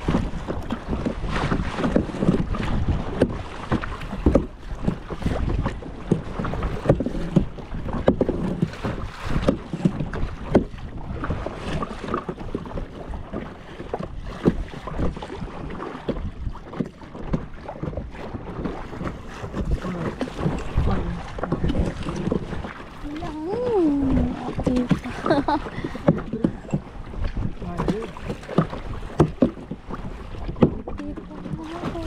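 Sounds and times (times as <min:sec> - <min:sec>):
paddle splashing in water: 0:00.0 - 0:32.0
wind rumble on microphone: 0:00.0 - 0:32.0.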